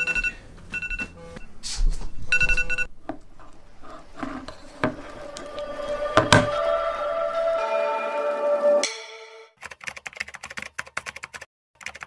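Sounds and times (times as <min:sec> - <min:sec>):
phone alarm beeping: 0:00.0 - 0:01.5, 0:02.2 - 0:02.9.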